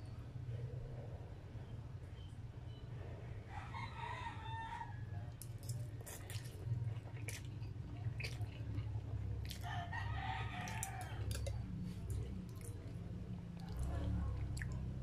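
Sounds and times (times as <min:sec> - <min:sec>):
steady low hum: 0:00.0 - 0:15.0
noodles chewed and slurped: 0:05.4 - 0:15.0.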